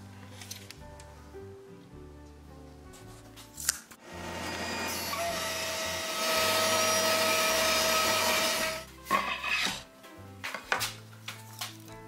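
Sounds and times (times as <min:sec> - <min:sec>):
thickness planer cutting board: 0:04.0 - 0:09.8.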